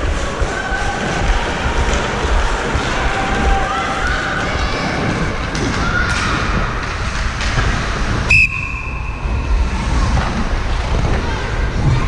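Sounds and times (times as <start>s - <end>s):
ice rink noise: 0.0s - 12.0s
referee's whistle blast: 8.3s - 9.2s.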